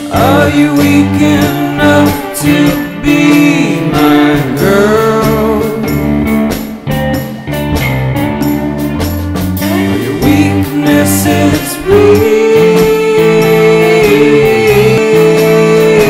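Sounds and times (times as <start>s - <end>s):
song with singing voice: 0.0s - 7.7s, 9.6s - 16.0s
bass line and beat: 0.0s - 16.0s.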